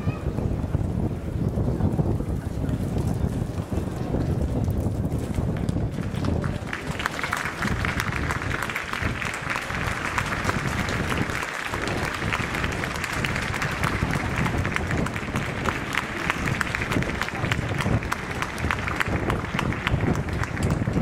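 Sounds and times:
crowd clapping: 0:04.5 - 0:21.0.

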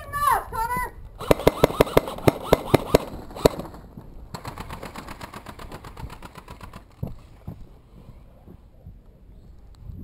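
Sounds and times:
airsoft gun shots: 0:01.2 - 0:06.8.

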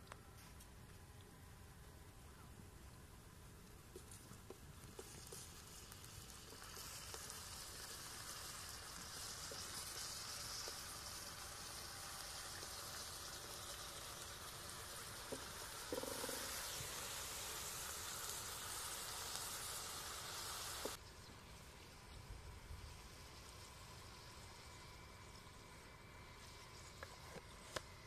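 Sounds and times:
onion sizzling in a pan: 0:04.9 - 0:21.0.

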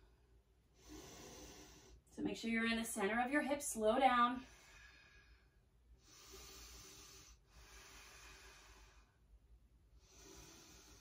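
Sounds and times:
slow deep breathing: 0:00.0 - 0:02.1, 0:04.4 - 0:11.0.

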